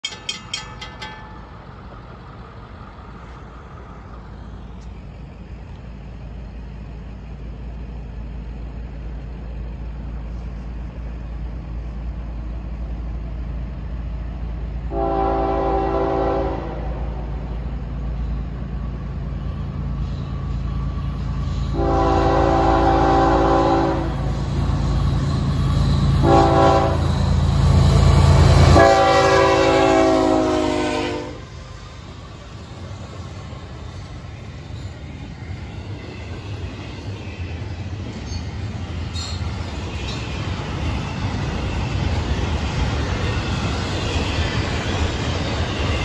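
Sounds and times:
diesel locomotives rumbling: 0.0s - 46.0s
train air horn blasts: 14.9s - 17.2s, 21.7s - 24.3s, 26.1s - 27.3s, 28.4s - 31.4s.

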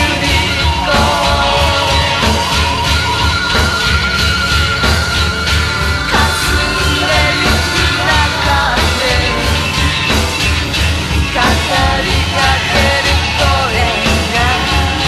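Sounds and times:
person singing: 0.0s - 3.3s, 6.1s - 10.0s, 11.3s - 15.0s
rock band playing: 0.0s - 15.0s.

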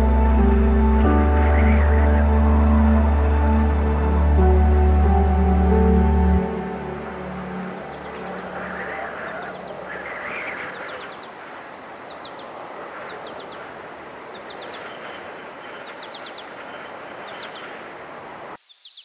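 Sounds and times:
music: 0.0s - 9.3s
rushing background: 0.0s - 18.6s
crickets chirping: 0.0s - 19.0s.

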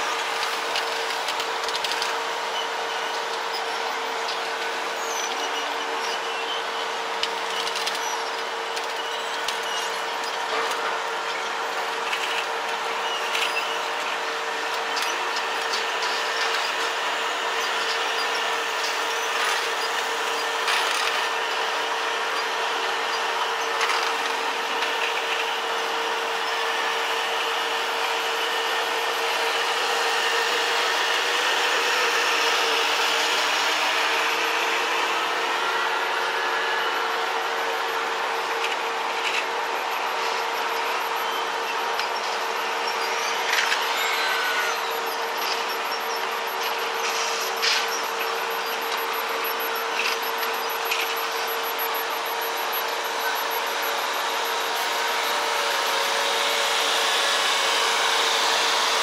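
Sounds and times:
transporter hum: 27.8s - 59.0s.

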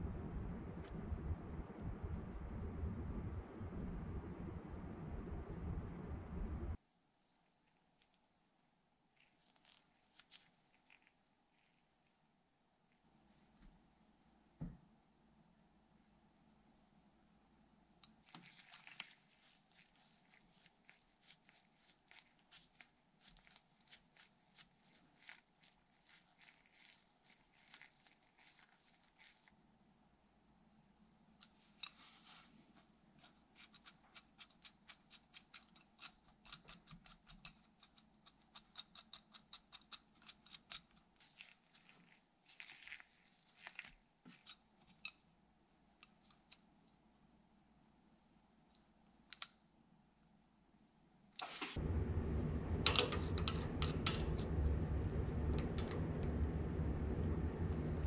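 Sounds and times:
loud steady noise with low hum: 0.0s - 6.8s, 51.4s - 58.0s.

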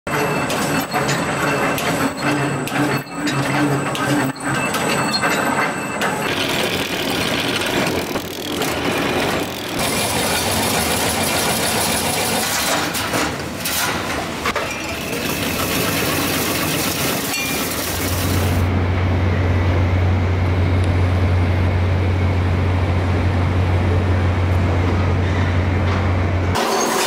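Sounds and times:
fence machines clattering: 0.1s - 18.7s
low machine hum: 15.0s - 26.6s.

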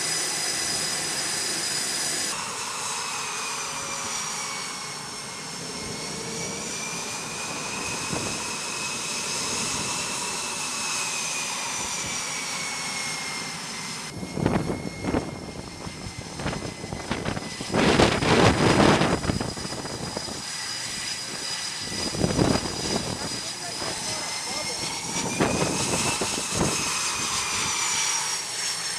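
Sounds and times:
jet engines whining: 0.0s - 28.9s
rushing jet noise gusts: 0.0s - 28.9s.

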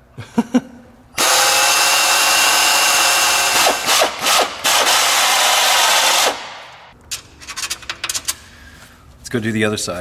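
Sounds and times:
drill grinding through sheet steel: 1.2s - 6.5s.

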